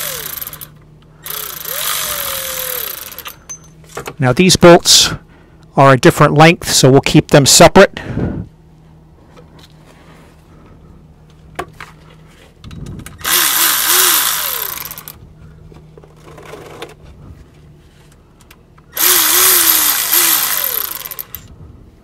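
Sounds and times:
power ratchet spinning bolts: 0.0s - 3.7s, 13.2s - 15.2s, 18.9s - 21.5s.

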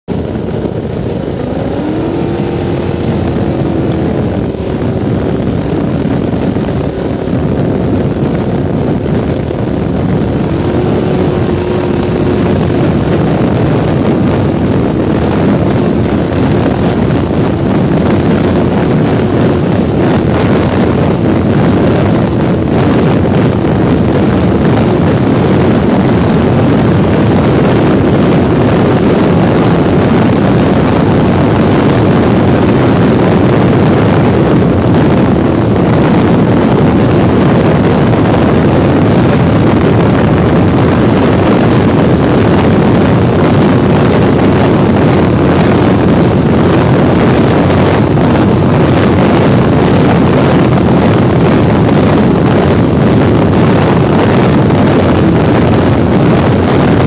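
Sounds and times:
boat engine running hard: 0.0s - 57.0s
rushing wind and water: 0.0s - 57.0s.

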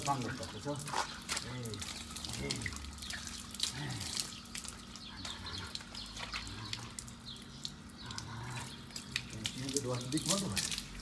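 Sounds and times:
water dripping: 0.0s - 11.0s
water from hose splashing: 0.0s - 11.0s.

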